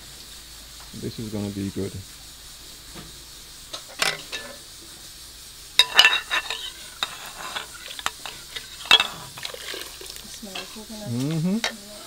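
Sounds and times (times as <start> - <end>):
kitchenware clinking and scraping: 3.8 - 4.7, 5.8 - 12.0.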